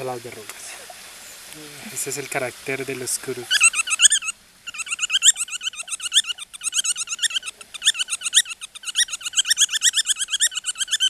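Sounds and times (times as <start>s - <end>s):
bat squeaking: 3.5s - 11.0s.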